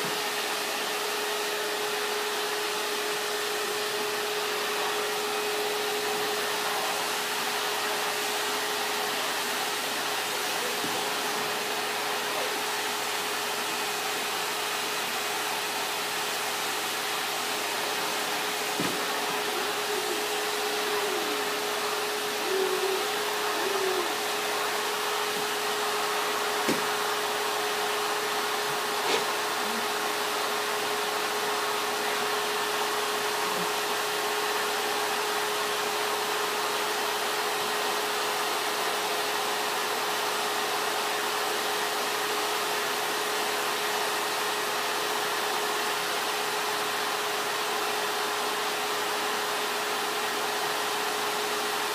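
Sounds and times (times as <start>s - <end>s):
machine humming: 13.9s - 31.2s.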